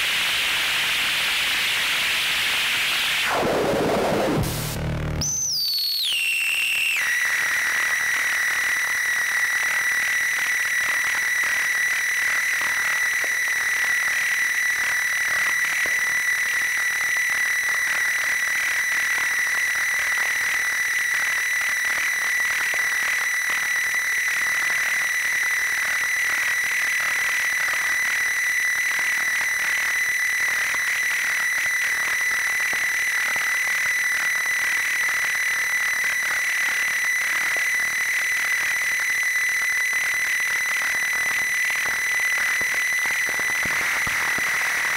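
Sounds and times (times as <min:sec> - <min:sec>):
synthesizer drone: 0:03.2 - 0:05.3.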